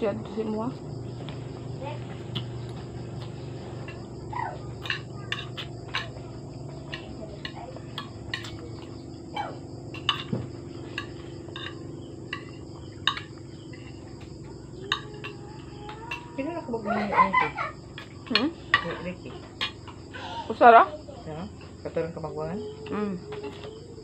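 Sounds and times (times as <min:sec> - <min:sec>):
low hum: 0:00.0 - 0:16.8
crickets chirping: 0:00.0 - 0:24.0
spoons clinking on ceramic plates: 0:04.8 - 0:06.2, 0:06.8 - 0:09.0, 0:09.9 - 0:16.4, 0:18.0 - 0:20.0.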